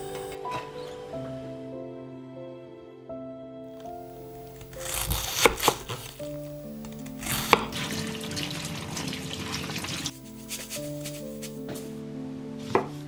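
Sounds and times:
background music: 0.0s - 13.0s
knife slicing cabbage on board: 4.6s - 6.4s, 7.1s - 8.3s, 9.9s - 11.9s
running water in sink: 7.1s - 10.6s.

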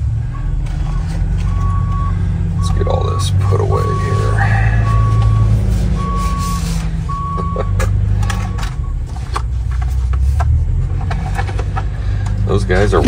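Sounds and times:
heavy engine rumble: 0.0s - 13.0s
reversing alarm beeping: 0.2s - 9.0s.

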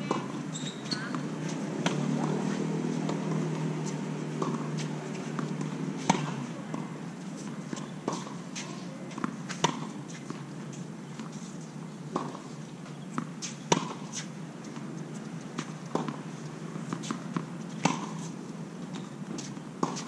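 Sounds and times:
tennis balls struck and bouncing: 0.0s - 11.4s, 12.1s - 20.0s.

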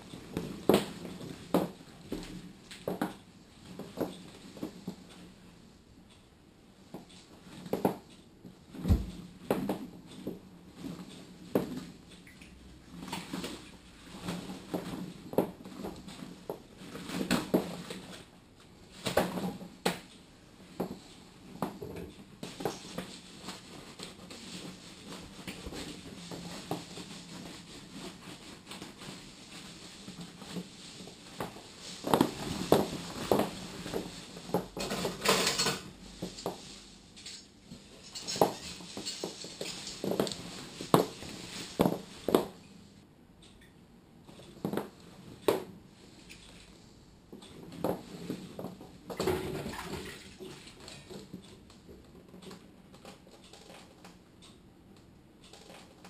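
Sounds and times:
dishes and cutlery clinking: 34.8s - 35.9s.

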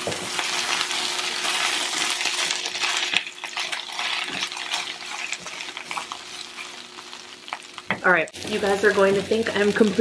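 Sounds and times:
spinach sizzling in oil: 0.0s - 10.0s
spatula scraping a pan: 1.2s - 7.7s.

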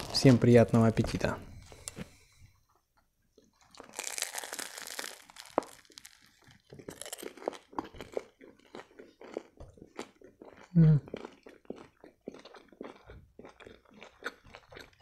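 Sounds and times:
crunchy chewing: 3.5s - 15.0s.

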